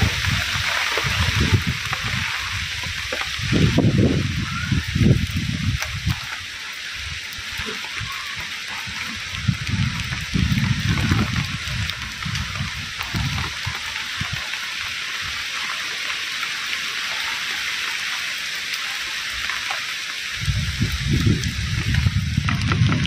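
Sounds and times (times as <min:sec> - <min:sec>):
heavy rain falling: 0:00.0 - 0:23.0.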